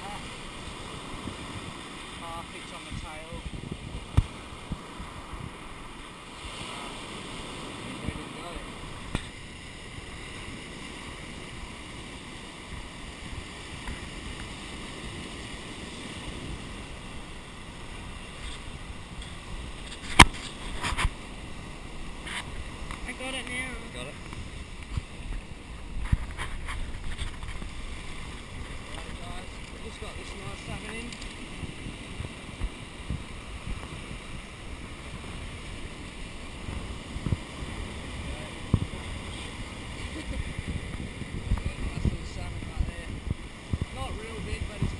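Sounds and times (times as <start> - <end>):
low thumps from gusts: 0.0 - 6.4, 8.8 - 44.9
waves washing up a beach: 0.0 - 44.9
wind: 0.0 - 44.9.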